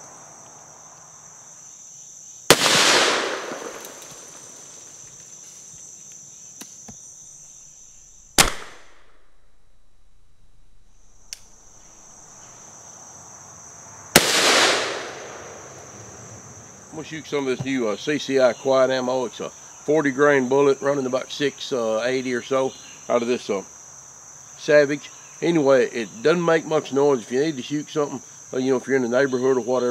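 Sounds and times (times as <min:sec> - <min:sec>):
crickets buzzing: 0:00.0 - 0:29.9
gunshots: 0:02.5 - 0:04.0, 0:08.3 - 0:09.4, 0:14.2 - 0:15.6.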